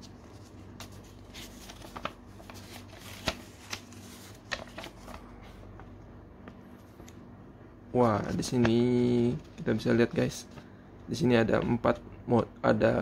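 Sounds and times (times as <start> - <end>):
paper rustling and crackling: 0.0 - 5.9.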